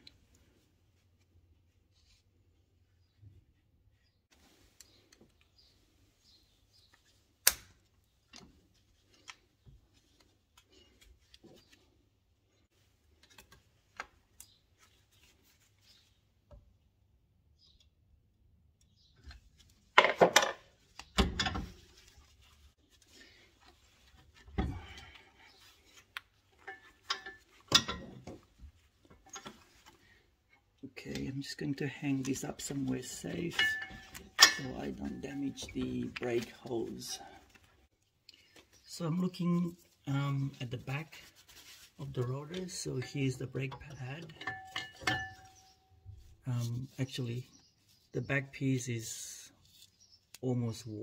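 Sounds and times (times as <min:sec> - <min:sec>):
metal scraping and clinking: 0:26.6 - 0:28.4, 0:32.2 - 0:37.2, 0:42.0 - 0:45.8.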